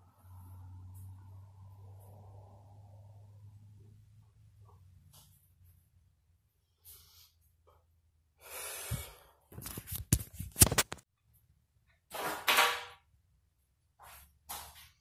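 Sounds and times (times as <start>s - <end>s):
person breathing close to microphone: 8.4s - 9.5s.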